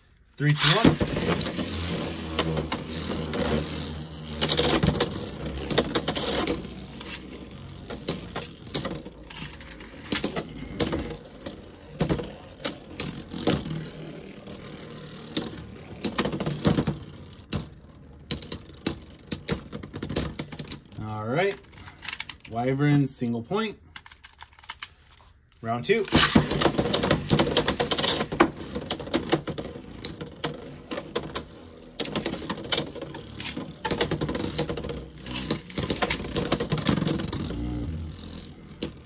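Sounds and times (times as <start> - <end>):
spinning tops whirring: 0.0 - 20.9, 26.1 - 39.0
spinning tops clacking together: 0.4 - 17.7.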